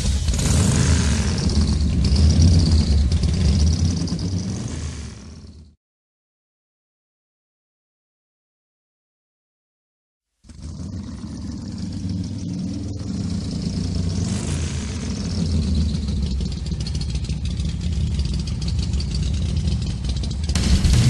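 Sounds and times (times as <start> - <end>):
vehicle engine and road rumble: 0.0 - 5.8, 10.4 - 21.0.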